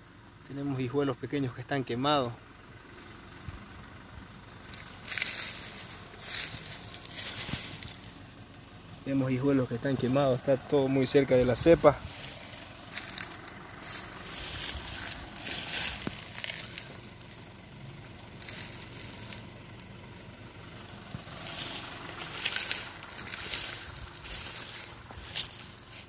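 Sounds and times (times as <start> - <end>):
dry leaves crunching underfoot: 2.9 - 8.8, 11.3 - 26.0.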